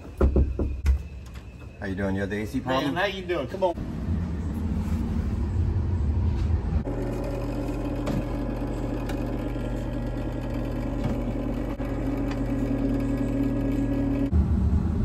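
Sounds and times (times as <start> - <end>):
motor humming: 3.8 - 14.9.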